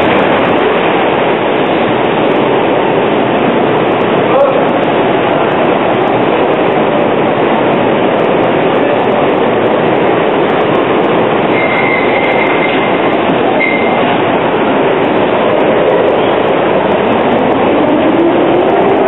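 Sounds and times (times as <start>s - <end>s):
tram idling din: 0.0s - 19.0s
thin high squeal: 11.5s - 12.9s, 13.6s - 14.0s.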